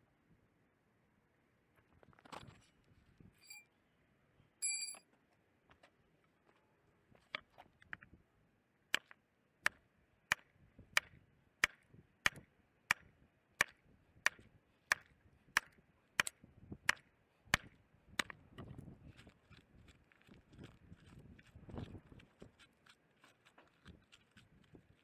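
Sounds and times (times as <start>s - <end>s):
concrete rubble crunching and scraping: 18.3s - 25.0s.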